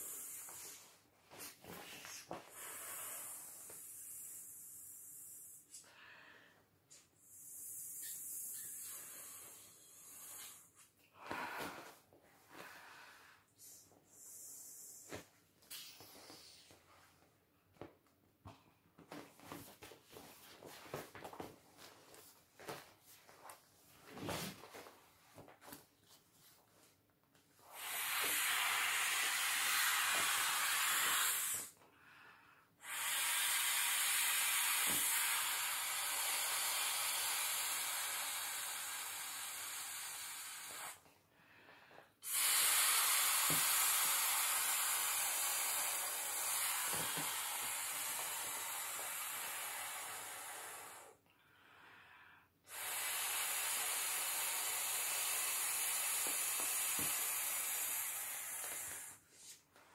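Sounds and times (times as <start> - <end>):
breath blown into inflatable valve: 0.0 - 6.0, 6.9 - 11.9, 13.5 - 16.7, 27.6 - 31.8, 32.8 - 41.0, 42.2 - 51.2, 52.6 - 59.6.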